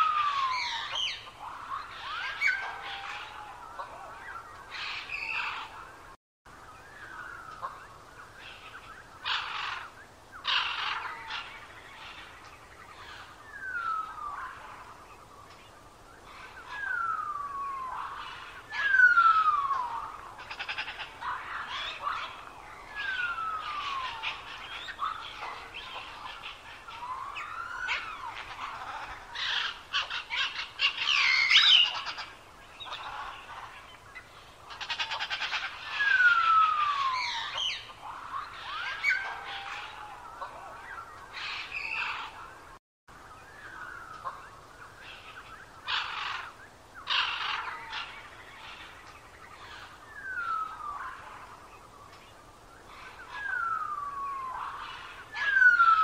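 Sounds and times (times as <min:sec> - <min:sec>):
bird singing whistled notes: 0:11.8 - 0:20.2, 0:48.3 - 0:56.0.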